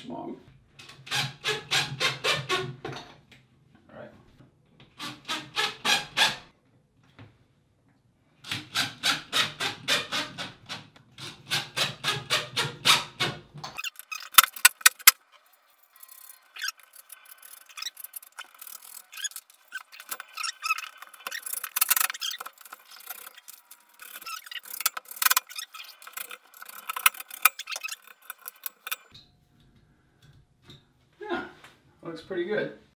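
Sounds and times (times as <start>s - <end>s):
metal rack rubbing and clicking: 13.7s - 15.2s, 15.9s - 29.1s
drill driving screws: 16.2s - 29.1s.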